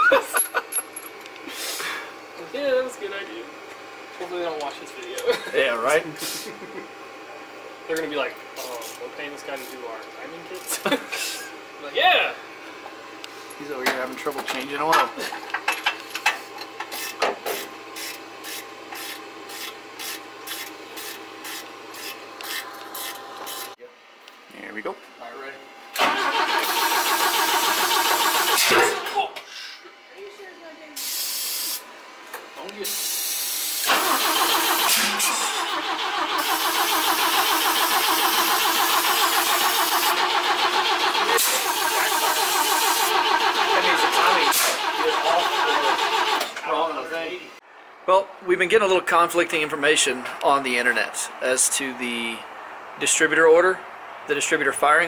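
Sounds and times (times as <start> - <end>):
starting fluid spray hiss: 26.0 - 28.7, 32.9 - 46.5
starter cranking engine: 26.0 - 29.2, 33.8 - 46.6.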